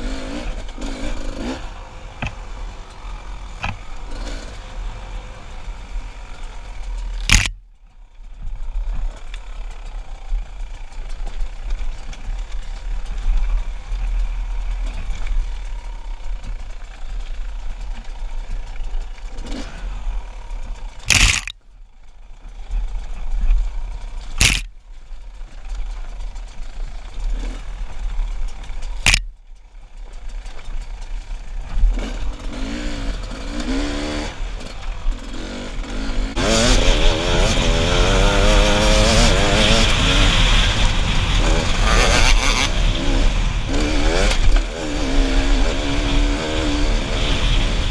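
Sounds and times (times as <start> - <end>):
dirt bike engine revving: 0.0 - 7.6, 8.8 - 21.5, 22.4 - 24.7, 26.1 - 29.3, 30.3 - 47.9
wind rumble on microphone: 36.4 - 47.9.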